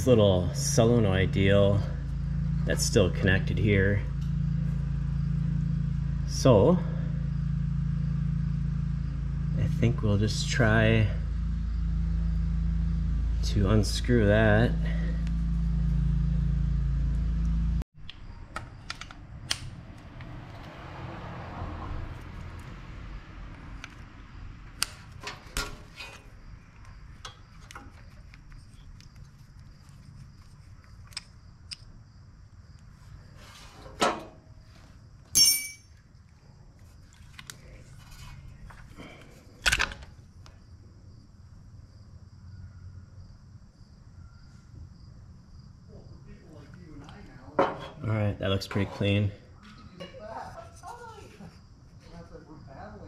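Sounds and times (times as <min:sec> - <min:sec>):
low mechanical hum: 0:00.0 - 0:20.8, 0:21.9 - 0:53.0
metal tools knocking and clinking: 0:35.3 - 0:36.0.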